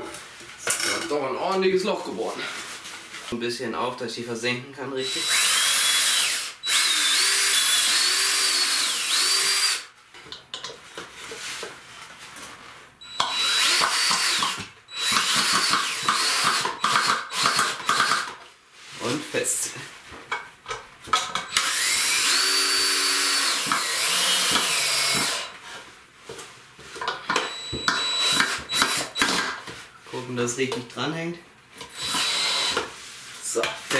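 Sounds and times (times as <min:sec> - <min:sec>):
cordless drill motor whine: 0:05.1 - 0:09.9, 0:13.0 - 0:16.5, 0:21.5 - 0:25.5, 0:27.4 - 0:29.4, 0:31.9 - 0:32.8.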